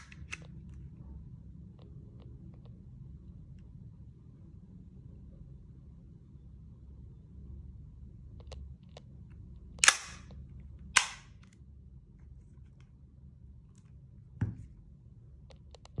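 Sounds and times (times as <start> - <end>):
airsoft pistol cracks: 9.8 - 10.3, 11.0 - 11.4.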